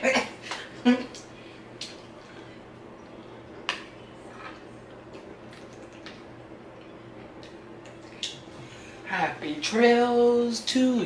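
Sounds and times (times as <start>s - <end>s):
eating and drinking: 0.6s - 9.0s.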